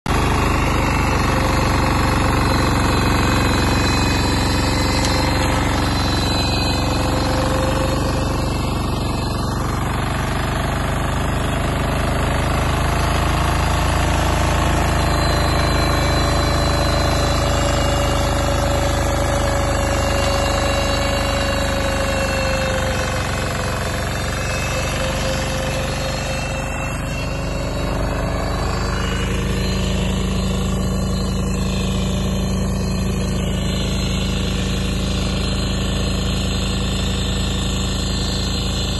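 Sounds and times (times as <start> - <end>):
diesel engine chugging: 0.1 - 38.9
rotary tiller churning soil: 0.1 - 38.9.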